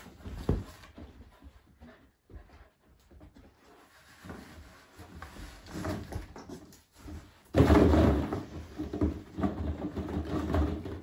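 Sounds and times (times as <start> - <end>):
plastic balls and cardboard clattering: 5.5 - 11.0.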